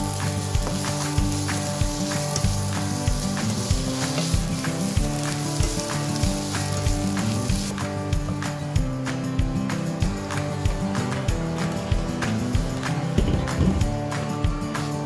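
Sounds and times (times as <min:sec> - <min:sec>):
ham sizzling in oil: 0:00.0 - 0:09.1
background music with steady beat: 0:00.0 - 0:15.0.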